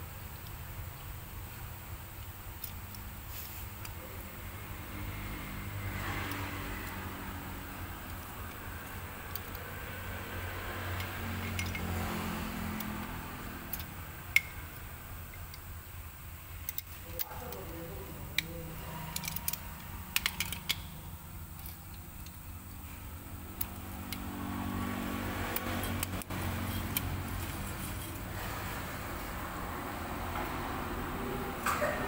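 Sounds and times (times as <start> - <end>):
steady low hum: 0.0 - 32.0
small metal parts clicking: 2.1 - 4.0, 5.6 - 15.8, 16.4 - 22.8, 23.5 - 28.3.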